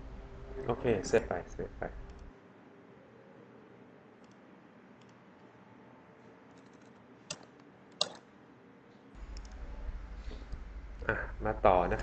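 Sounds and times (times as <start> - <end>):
low hum: 0.0 - 6.4, 9.2 - 12.0
computer mouse clicks: 4.2 - 4.4, 5.0 - 5.5, 6.5 - 8.2, 9.3 - 9.6.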